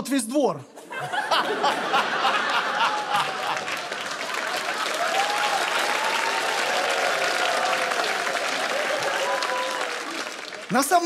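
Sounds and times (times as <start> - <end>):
audience laughing: 0.8 - 5.4
audience applauding: 1.2 - 11.0.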